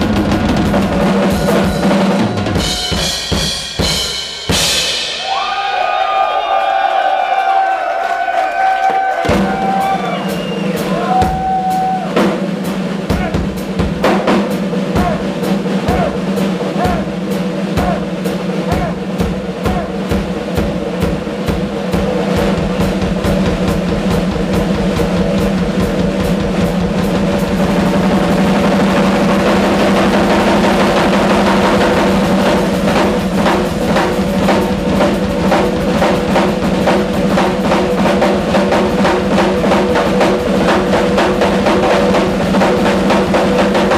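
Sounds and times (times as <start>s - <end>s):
rock drum solo: 0.0s - 7.7s, 8.6s - 43.9s
cymbals crashing: 0.8s - 5.8s.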